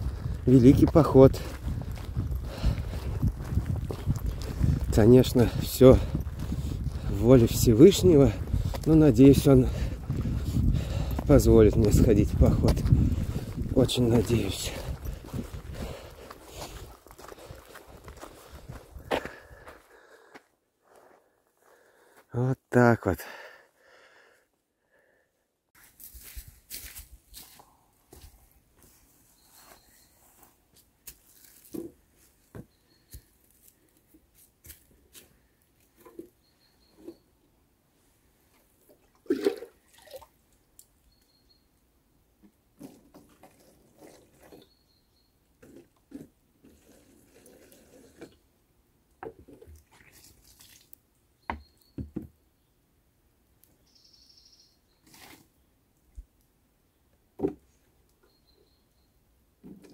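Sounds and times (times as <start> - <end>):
water pouring from plastic jug: 38.9 - 40.4, 42.8 - 44.6, 49.5 - 51.0.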